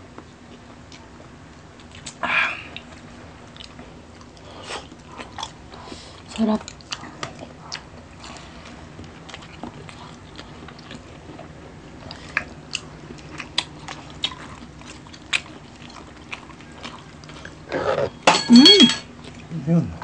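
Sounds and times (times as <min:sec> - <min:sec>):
person chewing and biting food: 0:06.7 - 0:18.2.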